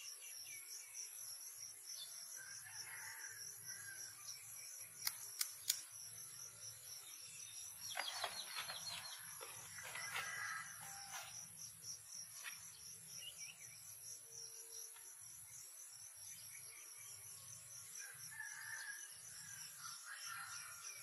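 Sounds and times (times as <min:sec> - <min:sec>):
insects chirping: 0:00.0 - 0:21.0
sharp clicks: 0:05.0 - 0:05.9.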